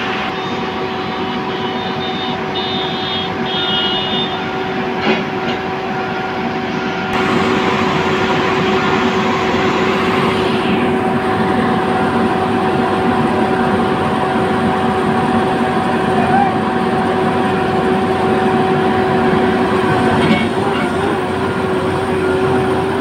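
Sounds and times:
diesel machine engines droning: 0:00.0 - 0:23.0
steady hum-like tone: 0:07.1 - 0:16.8.

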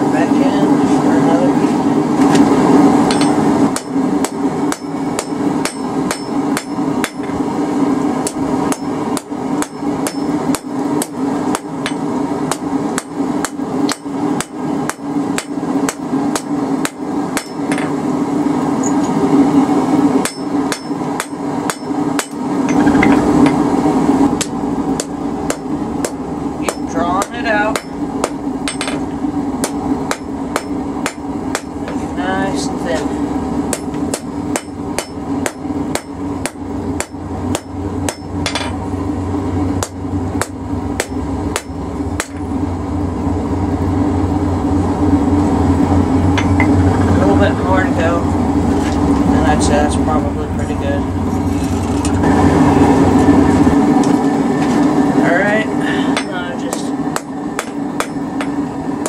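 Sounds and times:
steady low hum: 0:00.0 - 0:59.0
hammer striking chisel on hot steel: 0:03.1 - 0:07.4, 0:08.2 - 0:18.0, 0:20.2 - 0:23.6, 0:24.4 - 0:32.0, 0:33.7 - 0:38.8, 0:39.8 - 0:42.4, 0:56.1 - 0:58.6.

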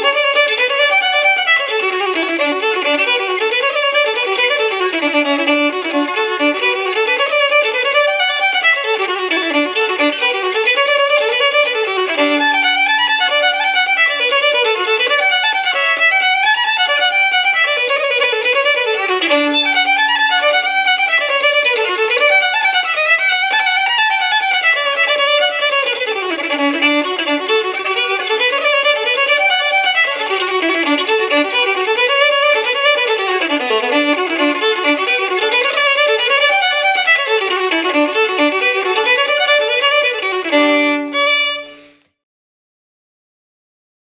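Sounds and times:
solo fiddle playing a reel: 0:00.0 - 0:42.1.

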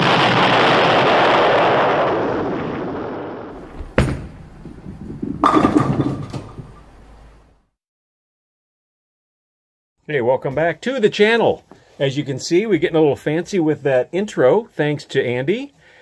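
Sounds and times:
crackling bangs: 0:00.0 - 0:07.6
sharp bang: 0:03.6 - 0:04.7.

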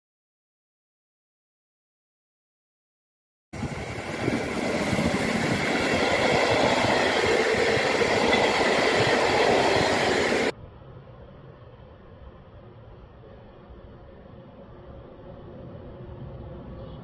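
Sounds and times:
freight train wheels on rails: 0:03.6 - 0:10.6.

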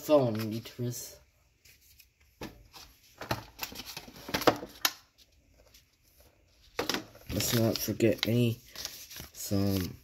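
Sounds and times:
cardboard packaging handled: 0:05.7 - 0:10.0.

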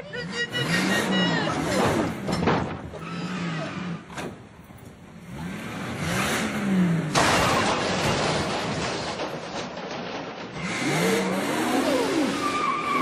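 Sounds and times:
van engine revving: 0:00.1 - 0:08.8, 0:10.5 - 0:13.0
van accelerating away: 0:05.0 - 0:07.9.

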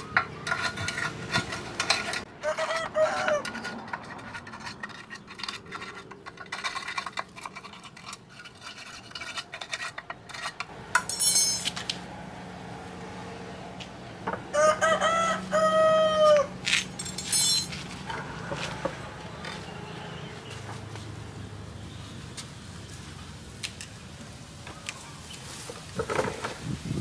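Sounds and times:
metal bars scraping and clinking: 0:00.0 - 0:11.9, 0:16.6 - 0:18.7
rooster crowing: 0:02.4 - 0:03.6, 0:14.5 - 0:16.6.

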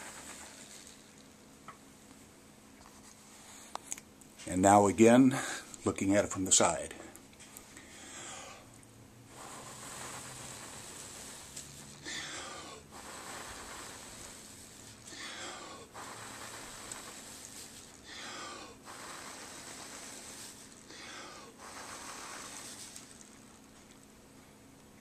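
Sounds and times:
person blowing hard: 0:00.0 - 0:01.2, 0:09.3 - 0:23.4.

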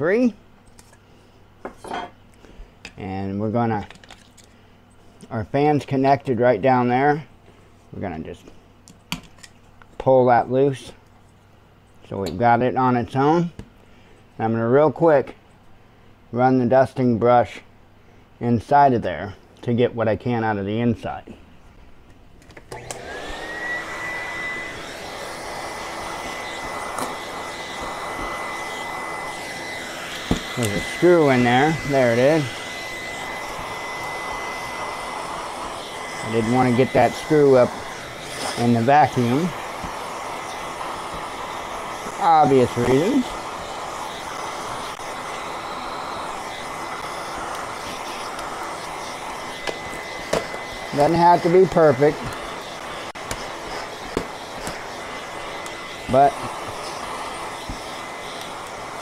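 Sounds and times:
vacuum cleaner motor whine: 0:22.6 - 0:59.0
vacuum suction roar: 0:22.8 - 0:59.0.

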